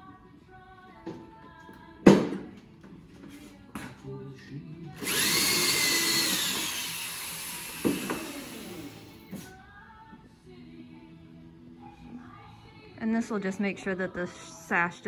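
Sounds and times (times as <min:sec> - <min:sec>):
electric drill boring into wood: 0:05.0 - 0:09.5.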